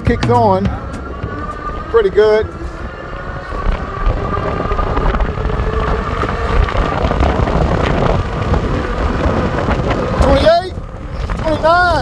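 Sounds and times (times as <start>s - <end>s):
electric bike motor whine: 0.0s - 12.0s
wind rushing over microphone: 0.0s - 12.0s.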